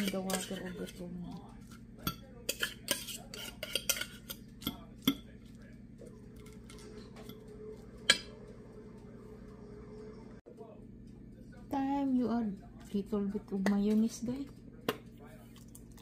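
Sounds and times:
fork clinking on plate: 0:02.0 - 0:05.4.

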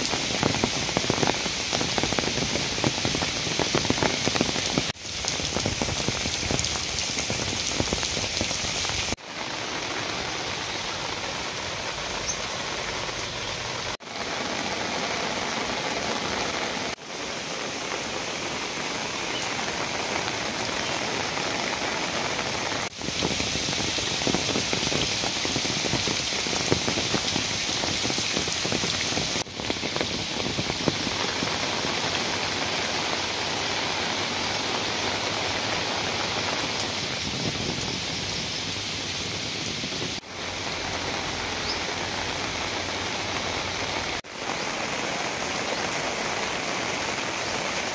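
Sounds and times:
rain on foliage and paving: 0:00.0 - 0:47.9.

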